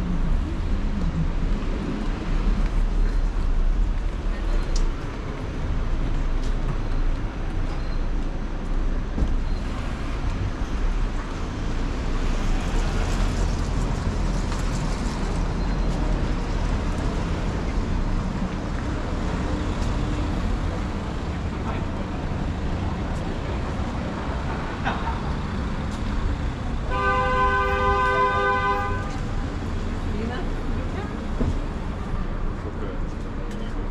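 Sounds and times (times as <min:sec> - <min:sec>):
traffic rumble: 0:00.0 - 0:33.9
car horn: 0:26.8 - 0:29.3.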